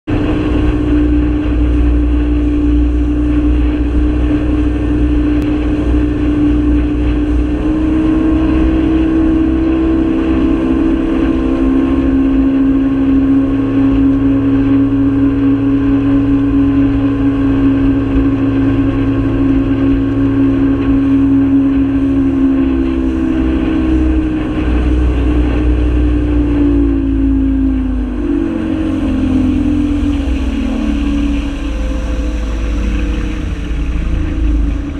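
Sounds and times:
boat motor running: 0:00.0 - 0:34.9
wind and water rushing: 0:00.1 - 0:34.9.

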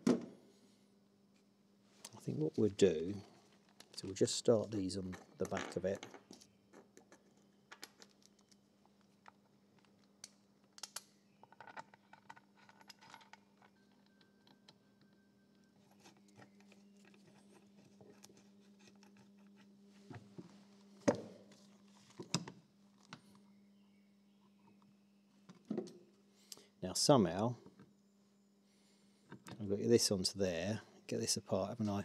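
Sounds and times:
faint steady hum: 0:00.0 - 0:32.0.

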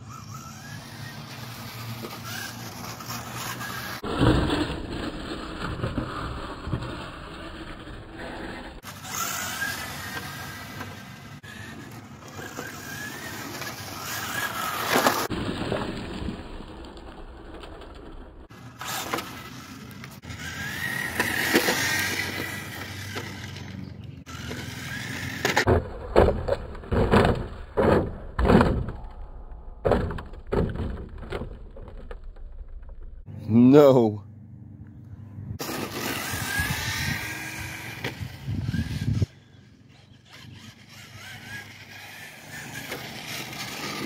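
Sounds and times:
tyres on rough asphalt: 0:00.0 - 0:44.0
short rushing bursts: 0:35.6 - 0:39.3
electric motor whine: 0:35.6 - 0:44.0.

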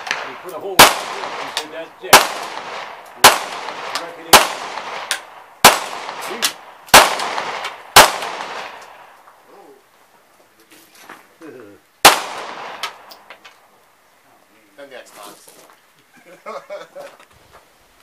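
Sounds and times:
handgun shots with ringing echo: 0:00.0 - 0:08.8, 0:12.0 - 0:13.1.

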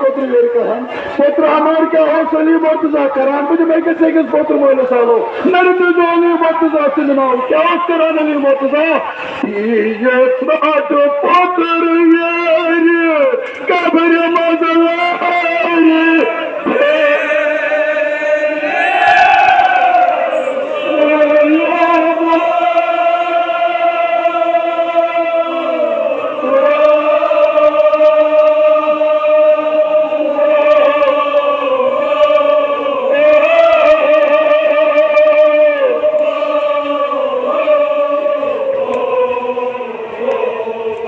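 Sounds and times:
voices chanting an elegy: 0:15.0 - 0:41.0.

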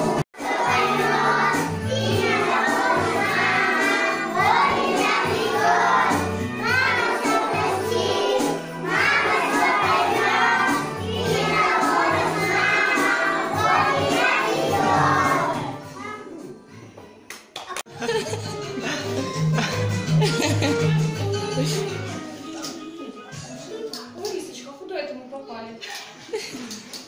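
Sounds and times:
children singing together: 0:00.0 - 0:15.9
backing music with bass: 0:18.2 - 0:22.2.

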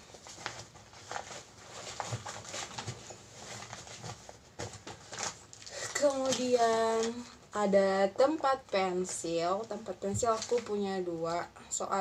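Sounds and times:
rustling in cloth bag: 0:00.0 - 0:07.2.

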